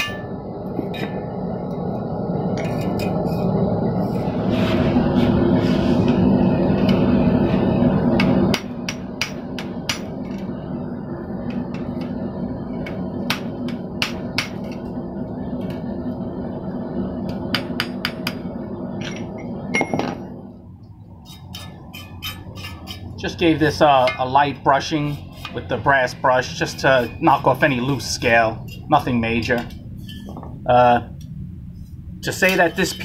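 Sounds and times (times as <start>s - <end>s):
hammer striking steel: 0.0s - 1.3s, 8.1s - 10.3s, 13.3s - 14.8s, 23.9s - 24.4s
steady drone: 0.0s - 33.0s.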